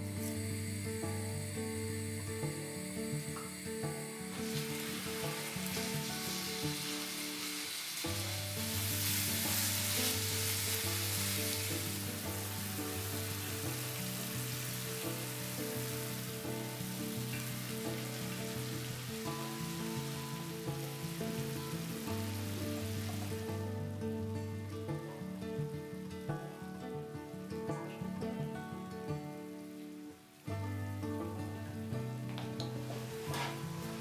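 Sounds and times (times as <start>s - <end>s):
soft background music: 0.0s - 34.0s
meat sizzling in frying pan: 2.4s - 23.9s, 32.7s - 34.0s.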